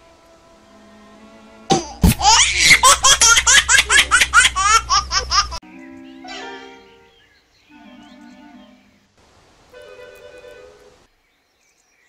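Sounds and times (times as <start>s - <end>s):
faint background music: 5.6s - 9.1s.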